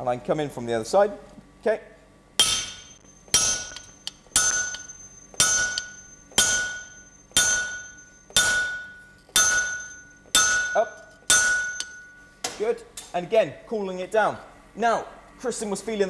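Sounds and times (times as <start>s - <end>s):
sledgehammer striking metal punch: 2.4s - 12.2s
anvil ringing: 2.4s - 12.4s.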